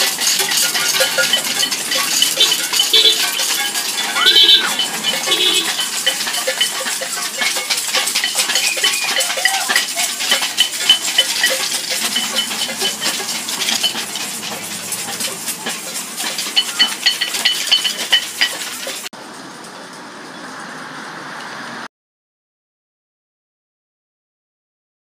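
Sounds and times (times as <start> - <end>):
bells ringing: 0.0 - 19.9
metal noisemakers clinking and clattering: 0.0 - 20.4.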